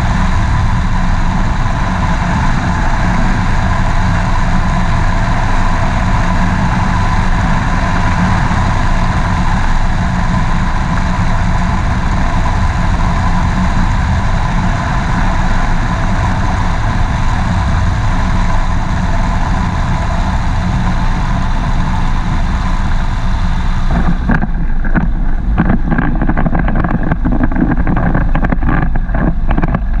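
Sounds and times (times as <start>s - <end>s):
aircraft engine running: 0.0s - 30.0s
knocks and rattles over grass: 23.9s - 30.0s.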